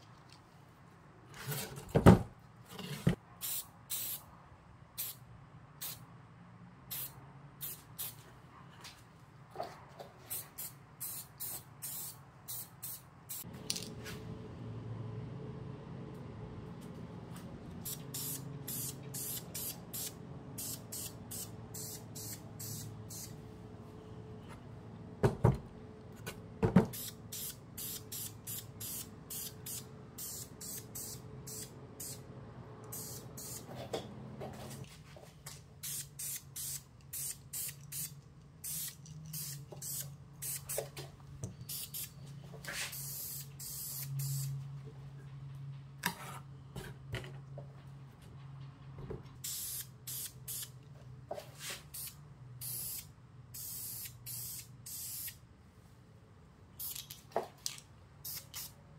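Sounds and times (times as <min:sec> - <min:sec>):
aerosol spray can hissing: 0:17.9 - 0:23.3, 0:27.0 - 0:32.2, 0:35.8 - 0:40.9, 0:42.9 - 0:44.5, 0:49.4 - 0:50.7, 0:51.8 - 0:55.4, 0:58.2 - 0:58.7.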